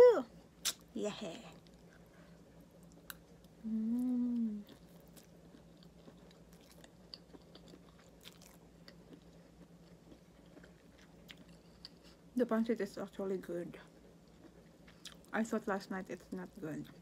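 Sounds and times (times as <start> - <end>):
quiet chewing: 1.5 - 12.3, 13.9 - 15.3
woman humming with enjoyment: 3.6 - 4.8.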